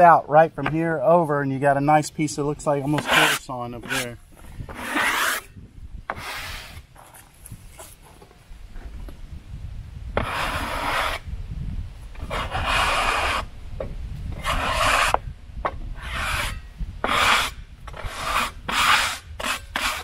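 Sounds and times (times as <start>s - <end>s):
brush sweeping sawdust off wood: 2.7s - 5.5s.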